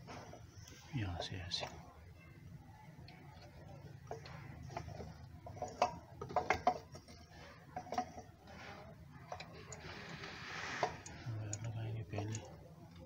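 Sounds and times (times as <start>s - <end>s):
small parts clicking and knocking: 3.0s - 13.0s.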